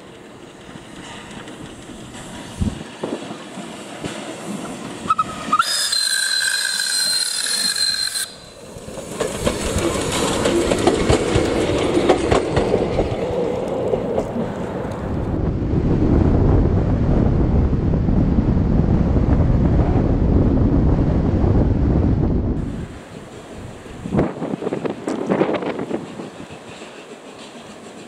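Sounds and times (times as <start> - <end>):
wheels clattering on rails: 0.0 - 15.3, 24.2 - 28.0
steam whistle: 5.1 - 8.6.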